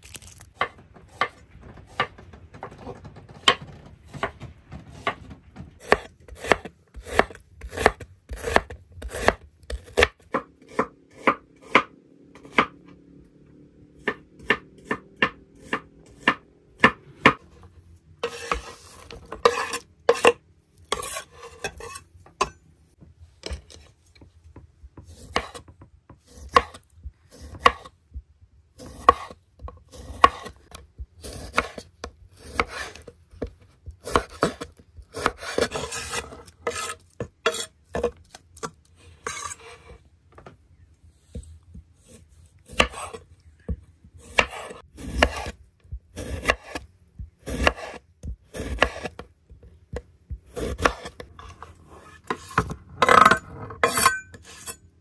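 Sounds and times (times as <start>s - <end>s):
knife chopping on wooden board: 5.8s - 12.7s, 14.0s - 17.4s, 25.0s - 27.9s, 28.8s - 30.6s, 32.4s - 38.2s, 42.0s - 45.6s, 46.2s - 49.2s, 49.9s - 51.6s
scraping food into metal pan: 18.2s - 22.1s, 39.0s - 40.0s.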